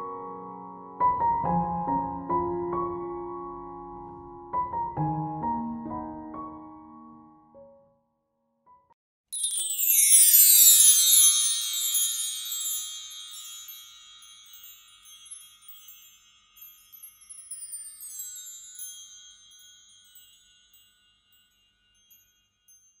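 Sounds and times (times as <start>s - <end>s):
cascading tinkling sparkle effect: 9.3s - 23.0s.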